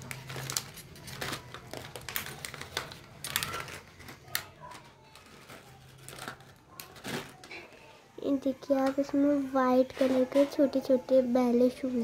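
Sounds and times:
plastic packet crinkling: 0.0 - 7.9.

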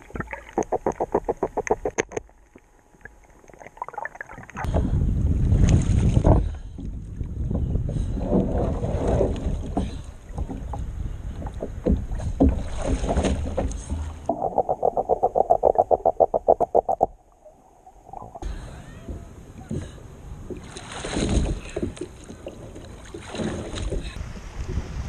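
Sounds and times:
fast underwater pulsing: 0.0 - 2.2, 14.2 - 18.5
water splashing against kayak hull: 0.0 - 4.8, 5.4 - 25.0.

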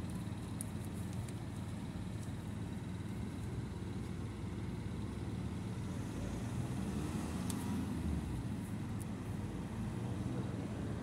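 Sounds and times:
low background rumble: 0.0 - 6.4.

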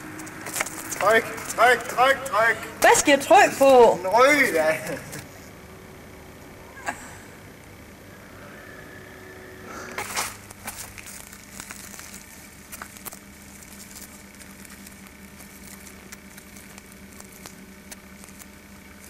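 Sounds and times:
faint low hum: 0.0 - 19.0
light crackles and clicks: 10.0 - 19.0.

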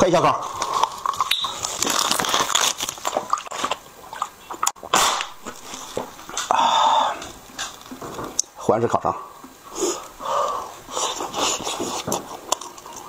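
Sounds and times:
plastic bottle crackling: 0.5 - 6.6, 7.2 - 8.5.

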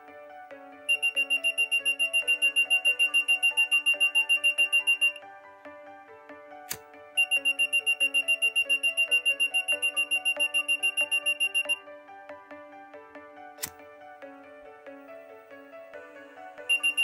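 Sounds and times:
buzzer beeping rapidly: 0.9 - 5.2, 7.2 - 11.8, 16.7 - 17.0.

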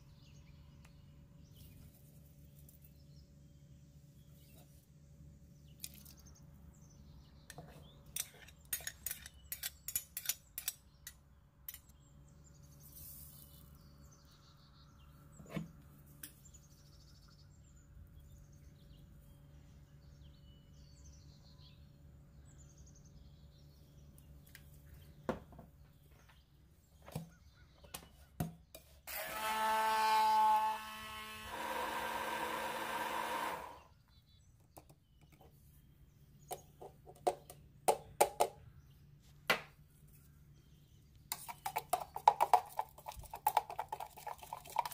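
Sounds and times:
kitchen utensils clicking: 8.2 - 10.8
electric blender running: 29.1 - 33.9.

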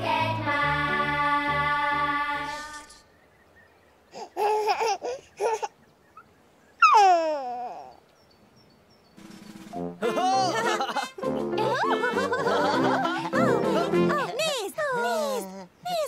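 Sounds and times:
children's song: 0.0 - 3.0, 9.8 - 16.0
baby babbling and giggling: 4.2 - 5.8, 6.8 - 8.0, 11.6 - 16.0
baby laughing loudly: 4.2 - 5.8, 6.8 - 7.9, 10.0 - 15.4.

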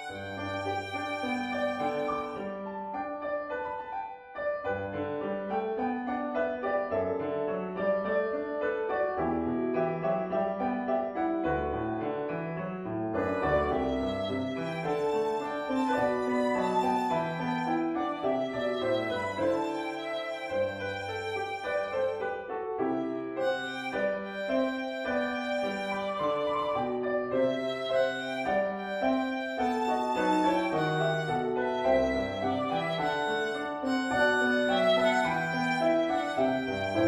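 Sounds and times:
solo violin melody: 0.0 - 2.8, 13.1 - 37.0
piano accompaniment: 0.0 - 37.0.

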